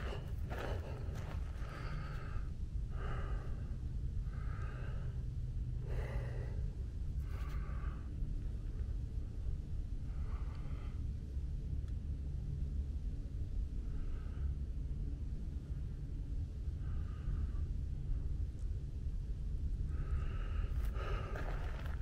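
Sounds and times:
person breathing heavily: 0.0s - 8.2s, 19.9s - 22.0s
wind rumble on microphone: 0.0s - 22.0s.

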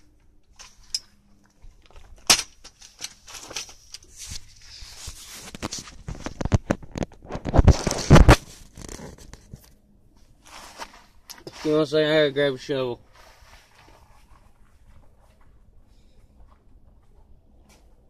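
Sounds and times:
phone handling rubbing and scraping: 2.7s - 9.8s.

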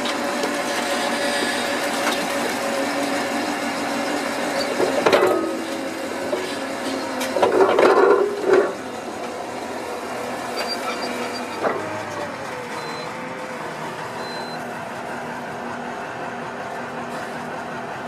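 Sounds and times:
plough engine running under load: 0.0s - 18.0s
faint high beeps: 12.8s - 13.1s, 14.2s - 14.6s.

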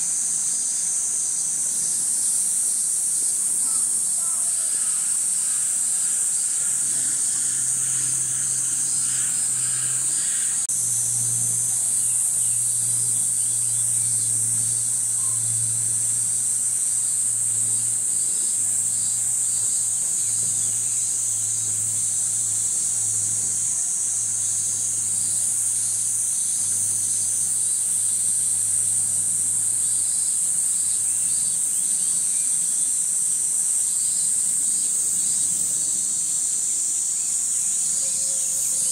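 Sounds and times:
cicadas buzzing: 0.0s - 38.9s
low steady hum: 0.1s - 30.0s.

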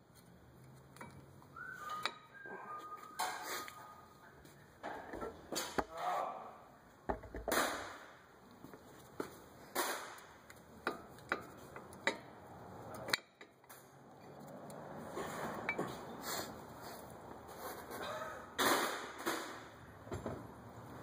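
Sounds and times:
metal clicks of brake pads: 0.2s - 2.3s, 10.2s - 14.8s.

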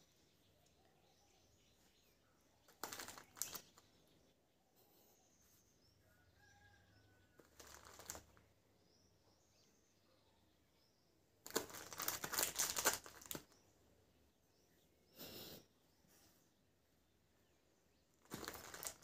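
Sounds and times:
plastic wrapper crinkling: 2.8s - 3.8s, 7.4s - 8.4s, 11.4s - 13.6s, 18.2s - 19.0s.

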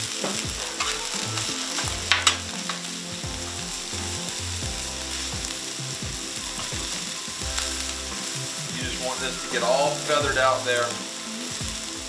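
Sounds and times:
food sizzling: 0.0s - 12.0s
metal spatula scraping griddle: 0.2s - 12.0s.

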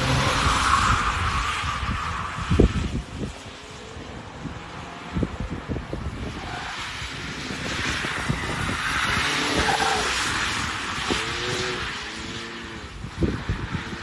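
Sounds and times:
tyres hissing on wet road: 6.3s - 14.0s
car engine revving hard: 9.1s - 12.9s.

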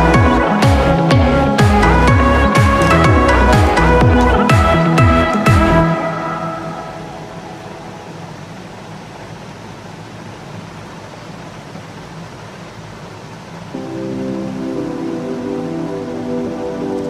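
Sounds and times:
background music: 0.0s - 8.5s, 13.8s - 17.0s
steady hiss: 0.0s - 17.0s.

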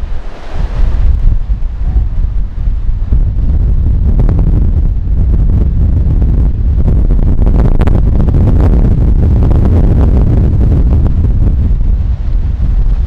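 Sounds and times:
heavy surf breaking: 0.0s - 13.0s
storm wind buffeting microphone: 0.0s - 13.0s.

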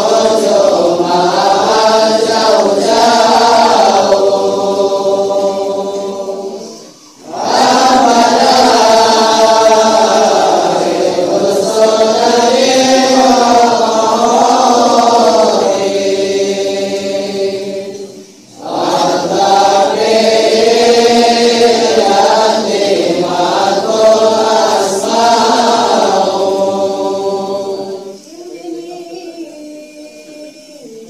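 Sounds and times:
man chanting: 28.2s - 31.0s.

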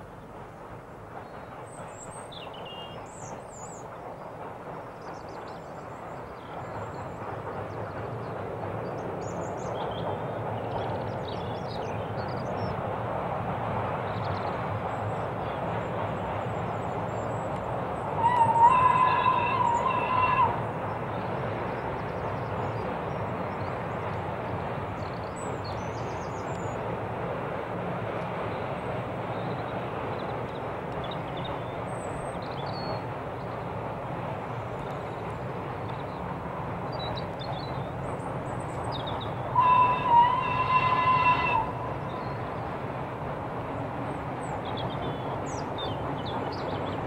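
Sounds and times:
train running across bridge: 0.0s - 47.0s
steam locomotive whistle: 18.2s - 20.6s, 39.5s - 42.0s.

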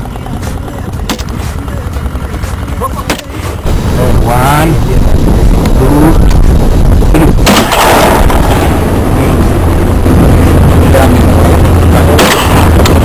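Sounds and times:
low rumble: 0.0s - 13.0s
gunshots: 7.3s - 8.8s, 12.1s - 12.7s.

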